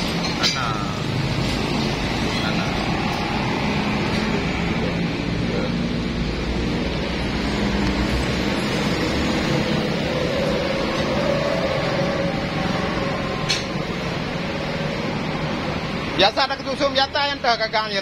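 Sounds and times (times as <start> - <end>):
mechanical hum and rumble: 0.0 - 18.0.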